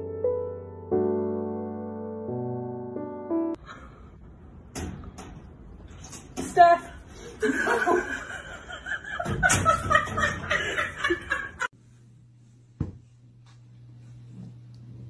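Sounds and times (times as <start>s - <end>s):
people laughing: 7.4s - 11.7s.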